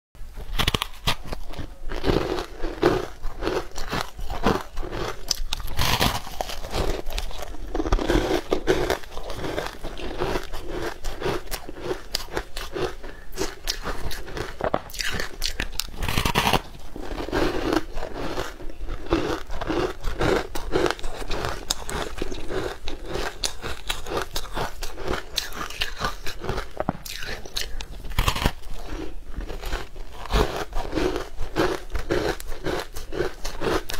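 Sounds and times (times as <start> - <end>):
crunchy biting and chewing: 0.4 - 33.9.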